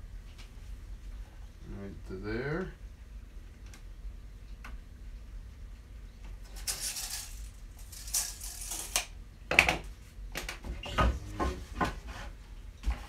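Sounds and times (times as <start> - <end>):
scraping on wood: 10.6 - 13.0.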